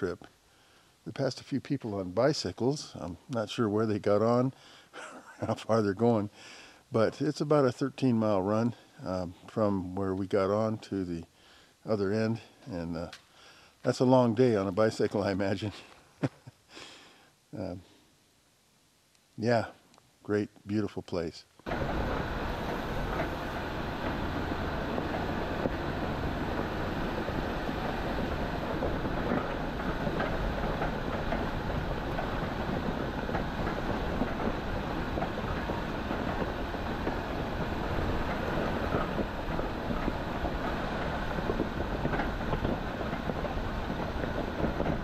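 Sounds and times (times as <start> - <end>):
tyres rumbling on rock: 21.7 - 45.0
vehicle knocking and rattling: 21.7 - 45.0.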